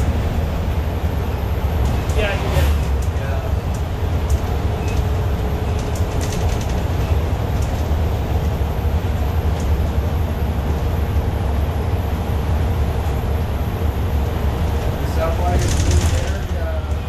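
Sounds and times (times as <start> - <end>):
bus engine and road rumble: 0.0 - 17.0
faint clicks and rattles: 2.8 - 8.6.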